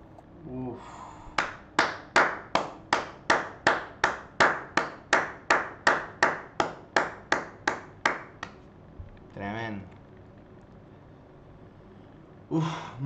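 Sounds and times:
person clapping: 1.4 - 8.6.

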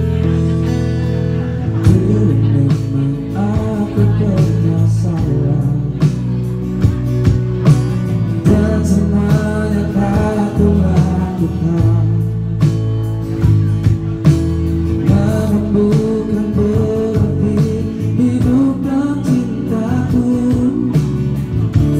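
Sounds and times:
bass guitar: 0.0 - 21.9
guitar: 0.0 - 21.9
person singing: 1.6 - 6.3, 8.4 - 12.4, 15.0 - 21.9.

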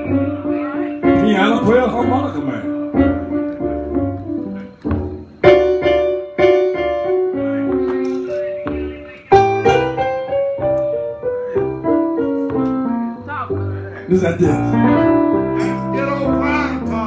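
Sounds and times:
blues piano on electric keyboard: 0.0 - 17.0.

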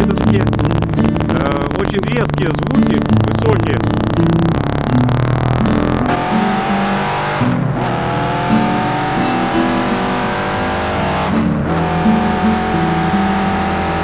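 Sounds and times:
motorcycle engine accelerating: 0.0 - 14.0.

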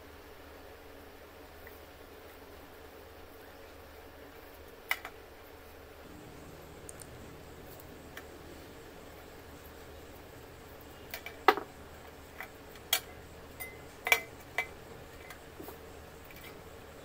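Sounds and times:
clicks and clinks in metal housing: 12.4 - 15.4.

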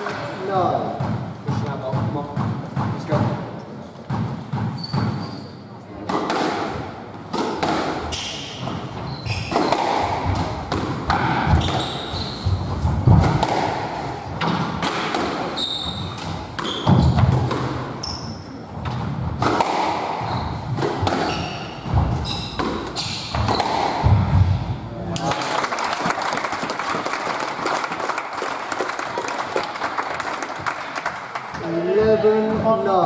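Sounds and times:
squash ball hitting rackets and walls: 0.0 - 24.8
shoes squeaking on wooden floor: 4.5 - 5.7, 8.0 - 10.4, 11.5 - 13.1, 15.5 - 19.0, 20.2 - 23.8.

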